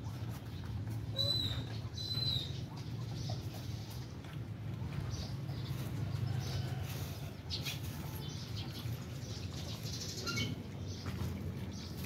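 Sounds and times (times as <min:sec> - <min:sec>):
puppies chewing and smacking: 0:00.0 - 0:06.7.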